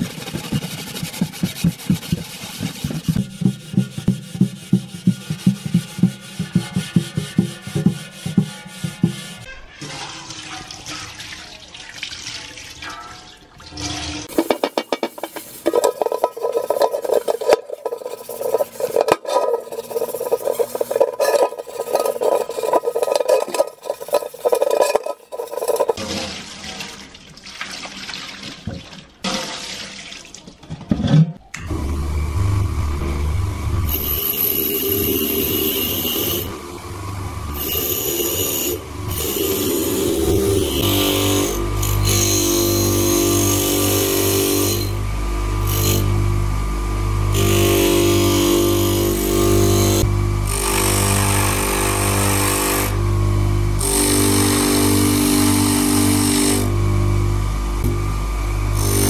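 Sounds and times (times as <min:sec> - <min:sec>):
scouring pad scrubbing metal pot: 0:00.0 - 0:30.2
water splashing over pot: 0:09.8 - 0:18.2, 0:25.3 - 0:30.7.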